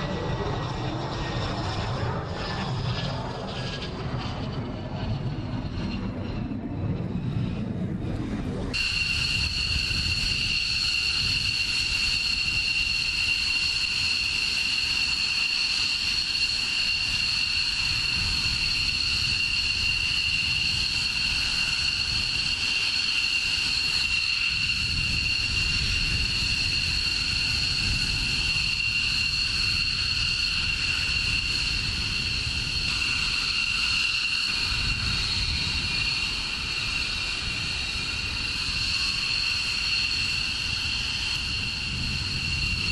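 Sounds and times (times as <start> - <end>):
low rumble: 0.0 - 8.8
jet turbine whine: 0.0 - 42.9.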